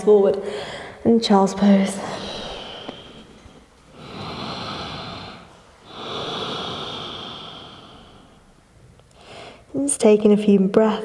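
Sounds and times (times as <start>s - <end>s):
woman breathing slowly: 0.4s - 1.1s, 1.8s - 9.7s.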